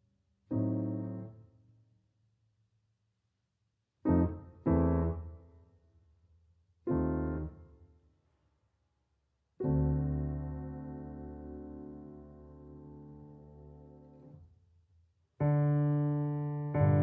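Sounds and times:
piano chords: 4.1 - 5.4, 6.9 - 7.6, 9.6 - 14.3, 15.4 - 17.0.

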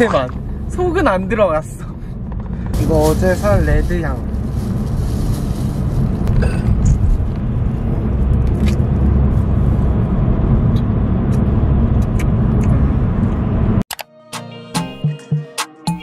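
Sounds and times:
car cabin road and engine rumble: 0.0 - 13.8.

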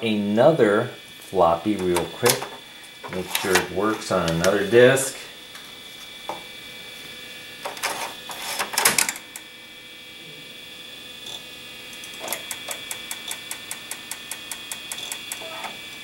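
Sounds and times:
floppy disk inserted into drive: 1.8 - 4.7
floppy drive head ticking: 11.9 - 16.0.

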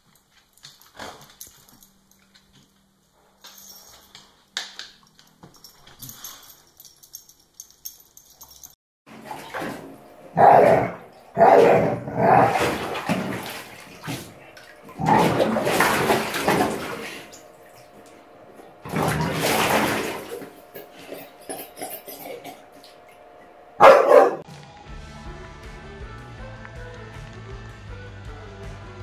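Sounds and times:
dog splashing in water: 9.1 - 21.9.

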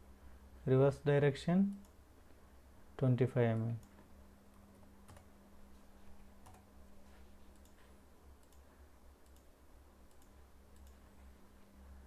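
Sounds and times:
low electrical hum: 0.0 - 12.0
computer mouse clicks: 5.1 - 5.3, 6.4 - 6.7, 7.5 - 9.5, 10.1 - 11.0.

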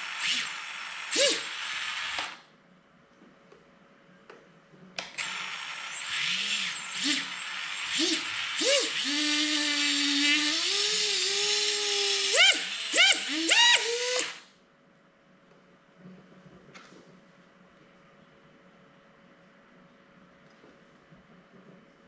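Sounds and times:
drone motors whining: 5.2 - 14.5.

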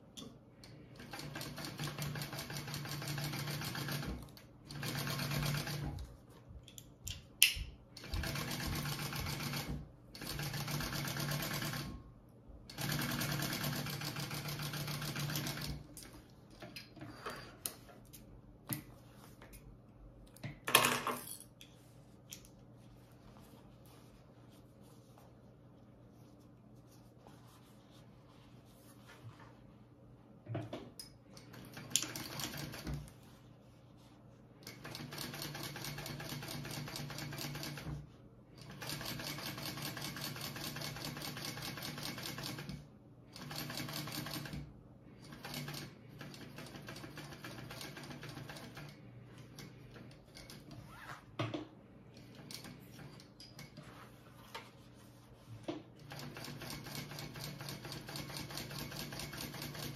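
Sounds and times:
sewing machine stitching: 12.7 - 15.9.

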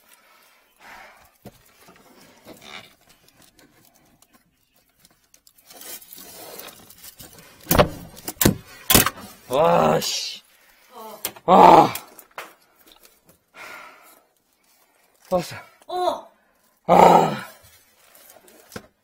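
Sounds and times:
drain cable scraping: 1.7 - 9.4.

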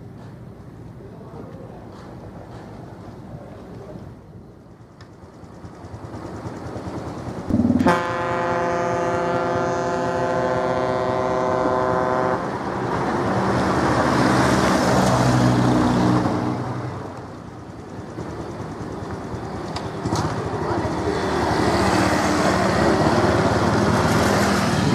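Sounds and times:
low engine drone: 4.3 - 13.4
ship's horn blast: 7.5 - 12.9.

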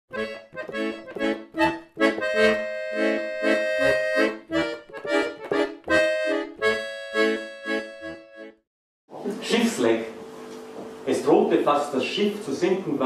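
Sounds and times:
accordion playing lively chords: 0.1 - 8.6.

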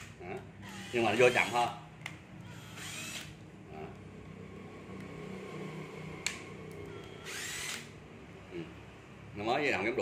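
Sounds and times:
impact driver motor humming: 2.5 - 3.4, 7.0 - 7.9.

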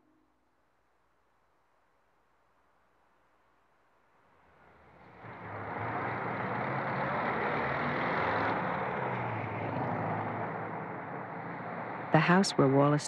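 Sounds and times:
cars and bus passing: 4.3 - 13.0.

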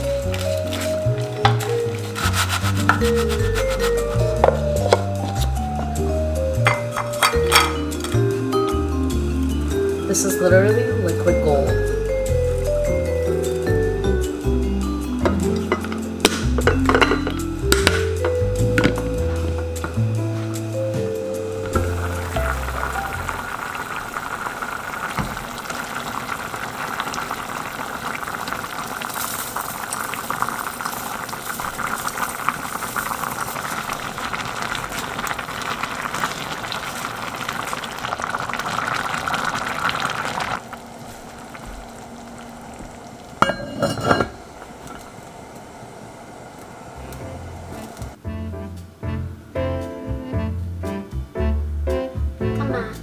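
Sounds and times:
wooden spoon stirring: 0.0 - 5.5
stew bubbling in a pot: 21.5 - 48.2.

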